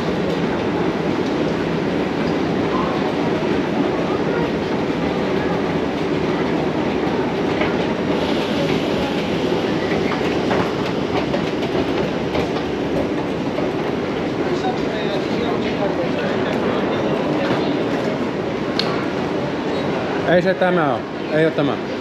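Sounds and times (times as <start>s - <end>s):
metro station drone: 0.0s - 22.0s.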